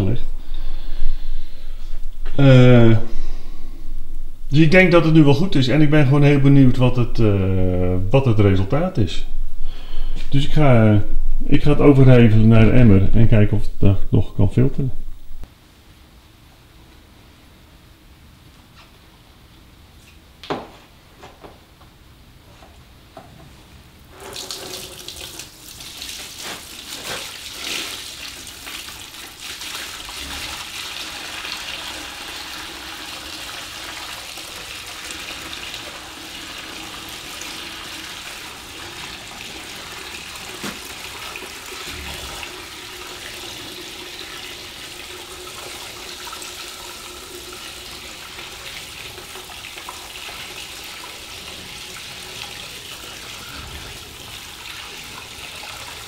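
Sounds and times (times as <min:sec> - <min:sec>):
liquid pouring into bucket: 0:24.2 - 0:56.0.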